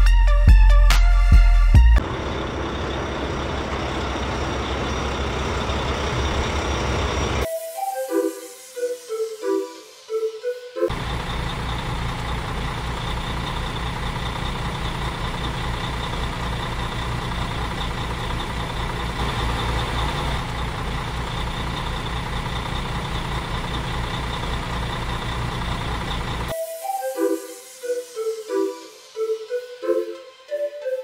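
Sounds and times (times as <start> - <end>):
truck engine idling: 1.8 - 7.5, 10.9 - 26.5.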